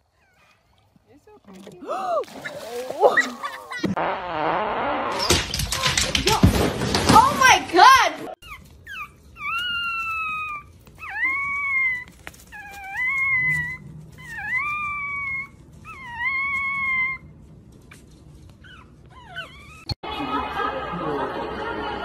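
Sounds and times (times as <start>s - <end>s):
dog howling: 9.5s - 17.3s.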